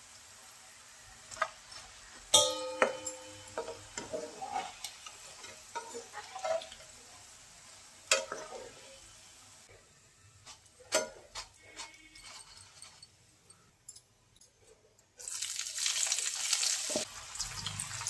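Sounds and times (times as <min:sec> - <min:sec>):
deep-frying sizzle: 0:00.0 - 0:11.5, 0:15.2 - 0:18.0
utensils clinking against wok: 0:02.3 - 0:06.9, 0:08.1 - 0:08.8, 0:10.4 - 0:14.8.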